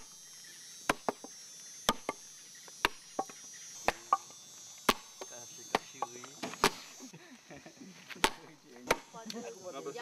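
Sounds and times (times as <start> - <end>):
insects droning: 0.0 - 10.0
lianas being pounded: 2.8 - 4.3, 4.9 - 6.8, 8.2 - 9.1.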